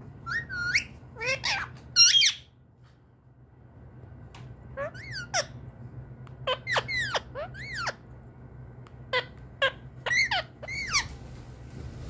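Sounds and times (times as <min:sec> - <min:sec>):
parrot squeaky calls: 0:00.2 - 0:02.5, 0:04.8 - 0:05.6, 0:06.4 - 0:08.0, 0:09.1 - 0:11.2.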